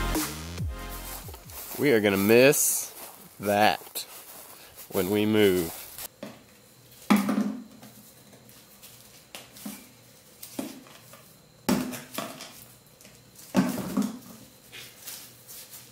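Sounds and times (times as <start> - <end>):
plastic bottle set down: 13.6 - 14.2.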